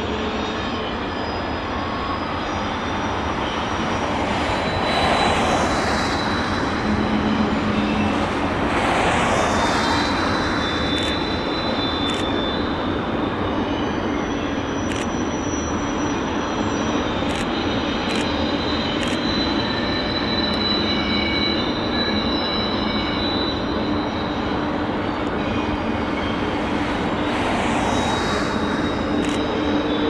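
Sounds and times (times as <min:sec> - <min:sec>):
freight train wheels rumbling: 0:00.0 - 0:30.0
high wheel squeal: 0:00.0 - 0:30.0.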